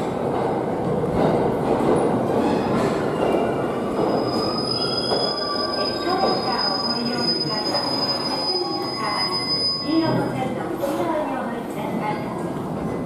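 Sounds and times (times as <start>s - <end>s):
train wheels rumbling on rail: 0.0s - 11.1s
high steady brake squeal: 4.1s - 10.1s.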